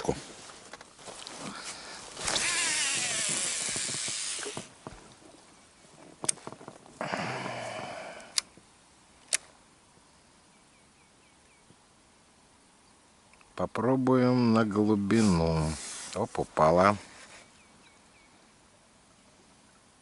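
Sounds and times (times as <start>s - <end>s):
electric boat motor running: 2.3s - 4.7s
sharp clicks: 8.2s - 8.6s, 9.2s - 9.5s.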